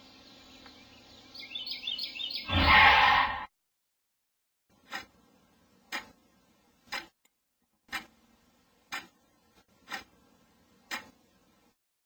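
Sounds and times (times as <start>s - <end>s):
clock ticking: 4.8s - 7.2s, 7.9s - 11.2s.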